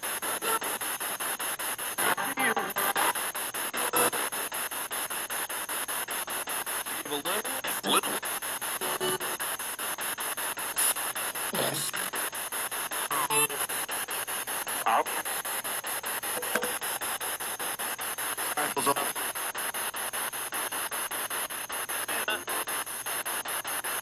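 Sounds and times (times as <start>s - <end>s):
radio tones: 0.0s - 1.0s, 2.0s - 4.5s, 6.7s - 19.4s, 22.0s - 22.8s
radio static chopping: 0.0s - 24.0s
radio voice fragments: 6.8s - 17.6s, 18.3s - 19.4s, 22.0s - 22.7s.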